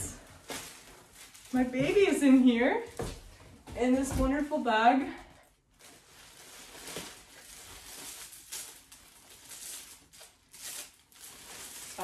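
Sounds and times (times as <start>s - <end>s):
bag rustling: 0.0s - 3.4s.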